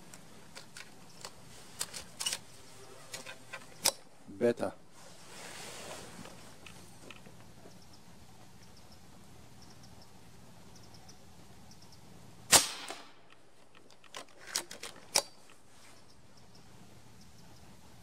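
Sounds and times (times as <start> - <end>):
quiet rifle clicks: 10.8 - 17.4
air rifle shot: 12.5 - 13.2.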